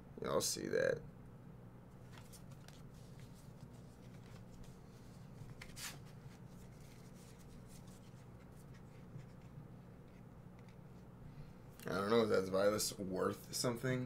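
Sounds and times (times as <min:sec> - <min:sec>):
low steady hum: 0:00.0 - 0:14.0
trading cards sliding and flicking: 0:02.0 - 0:10.8.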